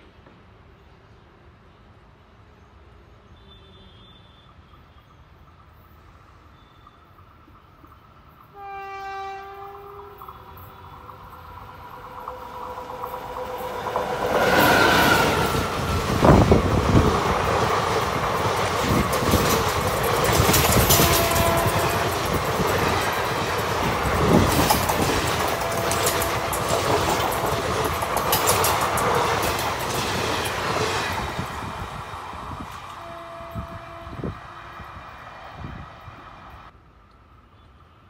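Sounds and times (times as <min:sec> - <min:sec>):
electric locomotive passing: 0:04.3 - 0:38.0
train clanks: 0:04.5 - 0:33.8
train wheels clattering over joints: 0:15.5 - 0:31.5.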